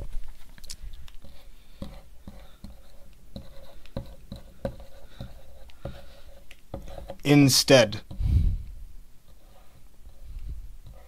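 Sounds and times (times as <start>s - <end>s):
marker scratching on blackboard: 1.2s - 8.2s, 9.2s - 11.0s.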